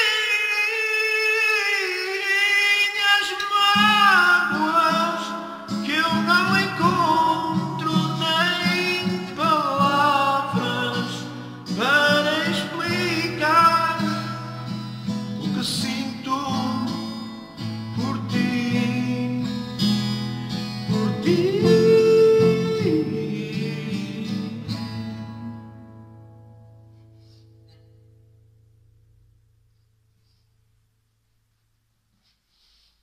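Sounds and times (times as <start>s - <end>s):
man singing: 0.0s - 26.0s
acoustic guitar strumming: 0.0s - 30.4s.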